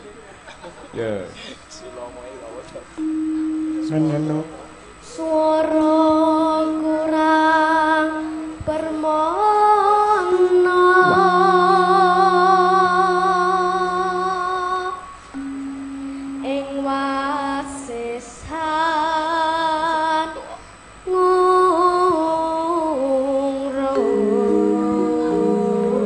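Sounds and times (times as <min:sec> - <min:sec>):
low steady held notes: 0:03.0 - 0:20.1, 0:21.0 - 0:26.0
boy singing into a microphone: 0:05.0 - 0:15.1, 0:16.4 - 0:20.4, 0:21.0 - 0:26.0.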